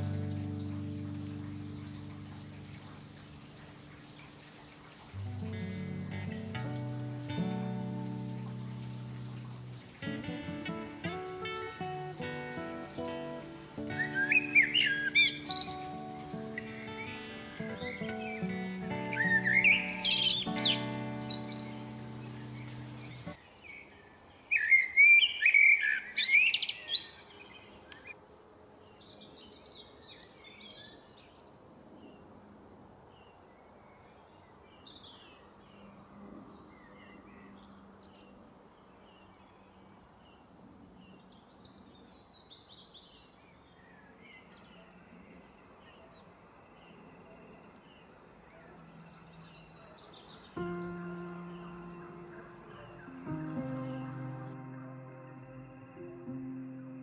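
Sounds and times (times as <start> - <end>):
birds chirping: 0.0 - 28.2, 41.1 - 57.0.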